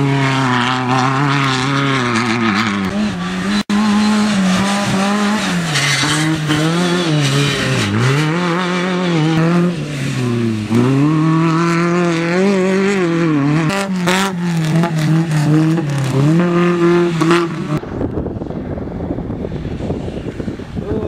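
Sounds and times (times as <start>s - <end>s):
race buggy engine revving: 0.0s - 18.0s
wind noise on microphone: 15.7s - 21.0s.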